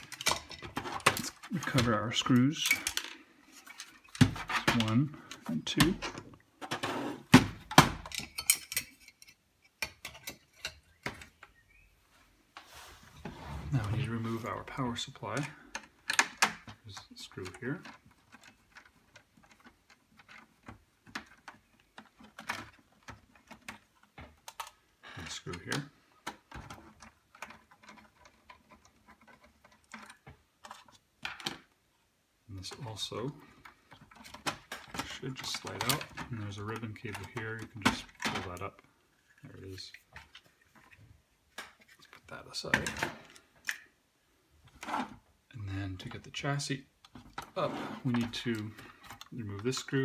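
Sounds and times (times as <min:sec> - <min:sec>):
metal laptop parts knocking and clinking: 0:07.7 - 0:11.2.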